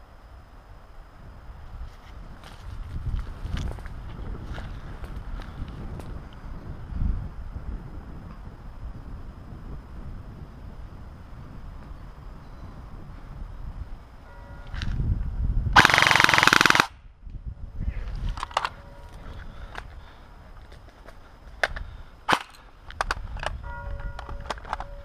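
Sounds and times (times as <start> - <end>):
airsoft rifle full-auto burst: 15.8 - 17.0
sharp single shot cracks: 22.3 - 22.7.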